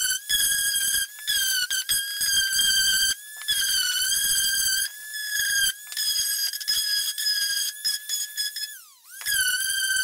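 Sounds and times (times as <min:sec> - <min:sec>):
sander motor whine: 0:00.0 - 0:10.0.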